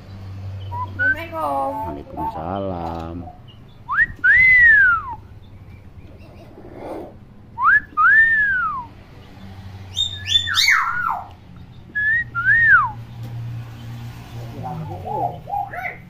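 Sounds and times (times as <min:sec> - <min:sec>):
harsh falling bird notes: 0:03.6 - 0:16.0.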